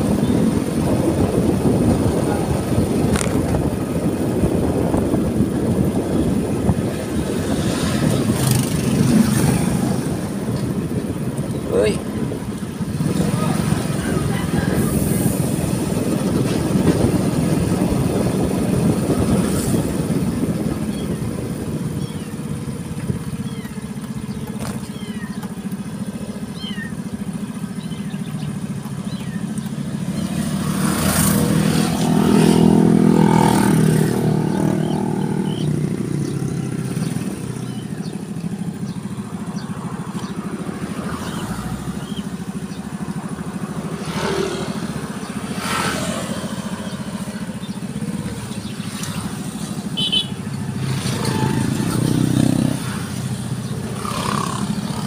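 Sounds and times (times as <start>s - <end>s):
motorcycle engine running: 0.0s - 55.0s
road noise: 0.0s - 55.0s.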